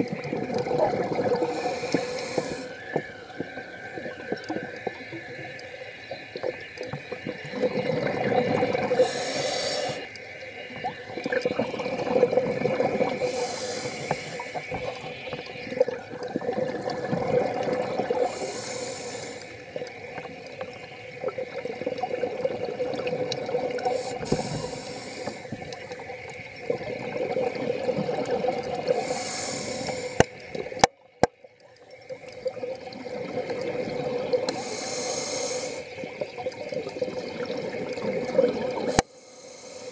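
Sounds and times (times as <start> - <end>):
exhaled bubbles rushing: 0.0 - 18.5, 19.8 - 29.1, 32.1 - 34.6, 35.8 - 39.0
diver breathing through regulator: 1.3 - 3.2, 8.8 - 10.1, 12.8 - 15.5, 18.1 - 19.6, 23.8 - 25.9, 28.8 - 30.3, 34.5 - 36.0, 38.8 - 39.9.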